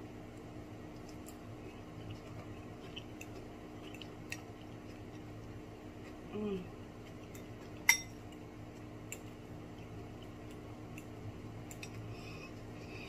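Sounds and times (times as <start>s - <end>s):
steady low hum: 0.0s - 13.0s
soft wet chewing: 0.3s - 13.0s.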